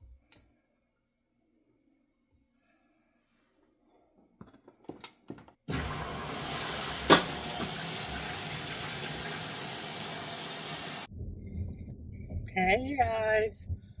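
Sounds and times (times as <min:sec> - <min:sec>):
water rushing into tub: 0:05.7 - 0:11.1.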